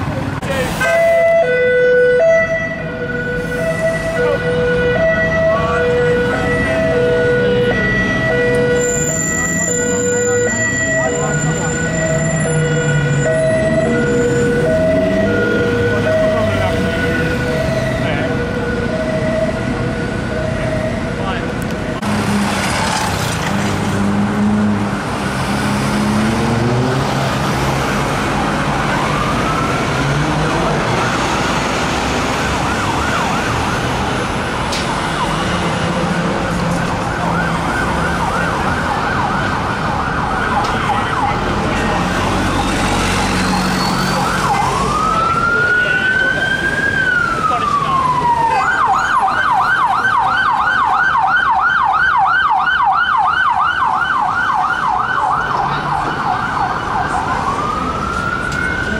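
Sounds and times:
city traffic: 0.0 - 58.9
police siren yelp: 0.8 - 21.6, 27.2 - 58.9
police siren wail: 0.8 - 58.9.

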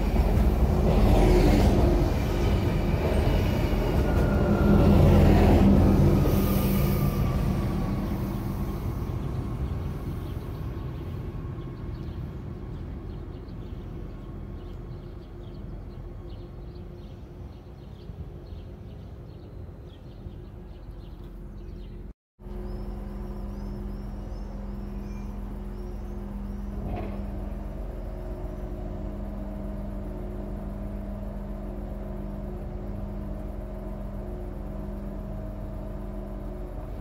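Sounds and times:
diesel train idling: 0.0 - 19.1, 22.4 - 37.0
diesel train pulling away: 0.0 - 37.0
birds chirping: 8.2 - 29.7.

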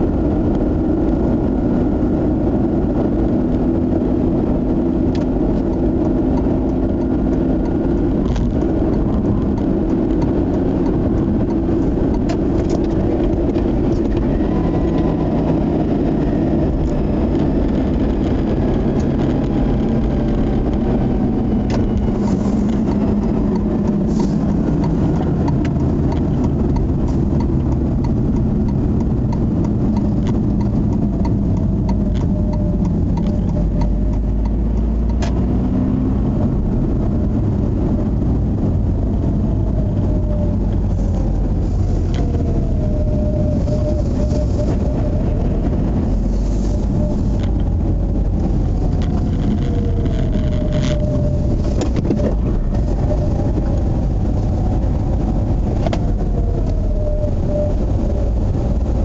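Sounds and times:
car engine from inside cabin: 0.0 - 59.0.

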